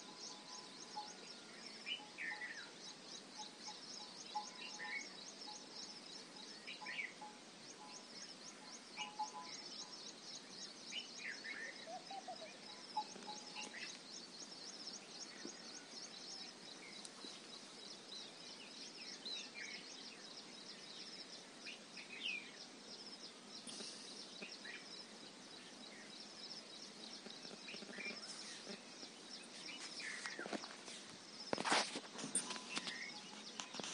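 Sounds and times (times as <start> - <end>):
birds calling: 1.8 - 33.9.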